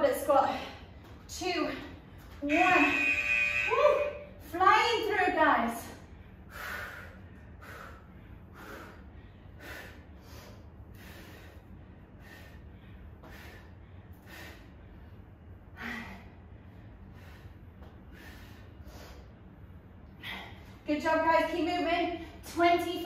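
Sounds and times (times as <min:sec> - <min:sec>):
faint low room hum: 0:00.0 - 0:23.0
woman breathing hard: 0:06.0 - 0:20.8.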